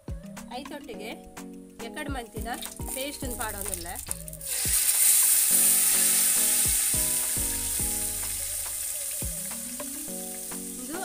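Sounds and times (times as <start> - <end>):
paste sizzling in hot oil: 2.6 - 11.0.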